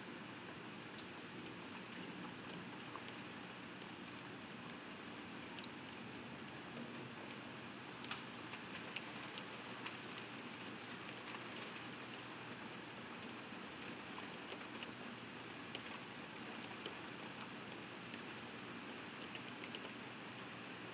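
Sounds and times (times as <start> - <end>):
steady rain through window: 0.0 - 20.9
raindrops ticking on glass: 6.7 - 20.9.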